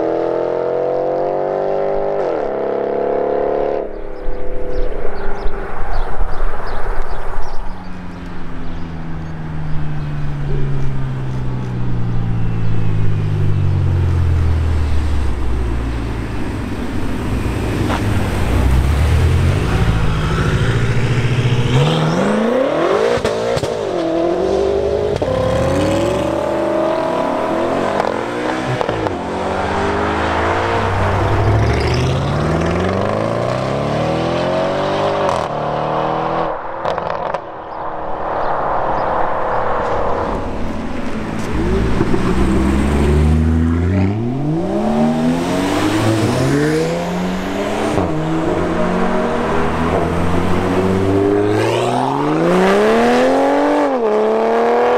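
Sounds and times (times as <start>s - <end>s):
cars accelerating hard: 12.6s - 54.9s
car engine revving through gears: 16.2s - 37.5s, 39.8s - 54.9s.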